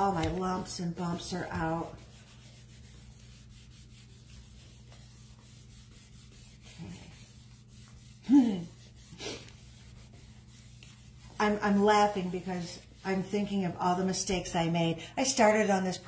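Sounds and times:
hands rubbing paper: 0.0 - 13.8
low steady hum: 0.0 - 16.0
person laughing: 8.2 - 9.4.

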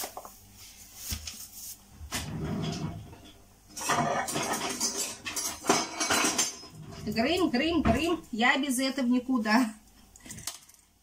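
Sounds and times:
metal kitchenware rattling: 2.1 - 8.2.

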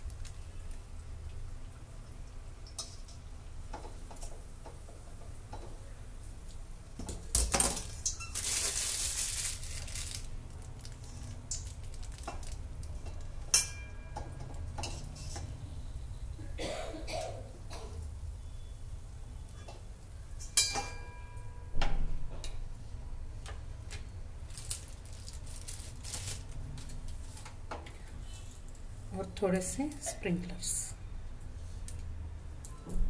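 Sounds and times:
plastic crinkling: 7.8 - 13.0, 24.4 - 27.5.

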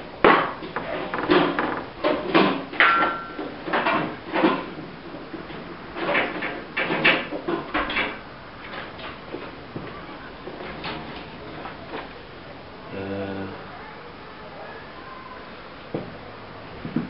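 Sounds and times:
metal tools knocking and clunking: 0.2 - 4.8.

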